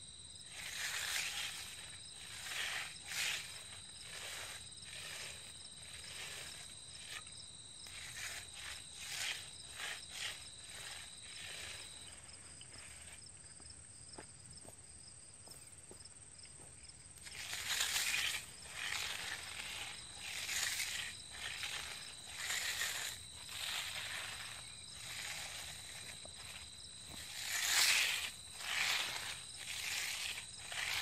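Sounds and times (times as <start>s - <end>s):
hand float swishing on wet concrete: 0.5s - 13.2s, 17.2s - 31.0s.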